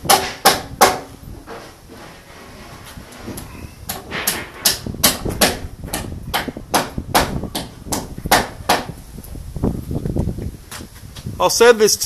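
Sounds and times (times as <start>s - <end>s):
hammer striking timber: 0.0s - 1.6s, 3.9s - 9.0s.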